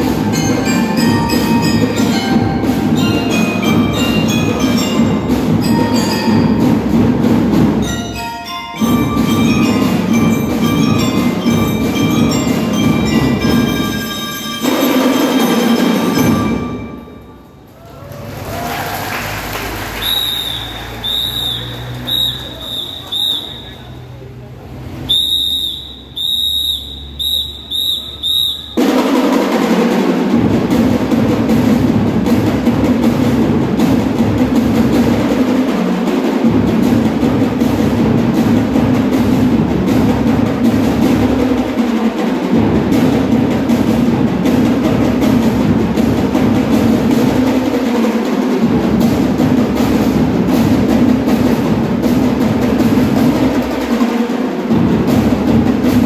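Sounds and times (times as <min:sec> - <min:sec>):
drum and lyre band playing: 0:00.0 - 0:17.7, 0:27.0 - 0:56.0
warbling whistle blasts: 0:20.0 - 0:23.9, 0:25.0 - 0:28.8.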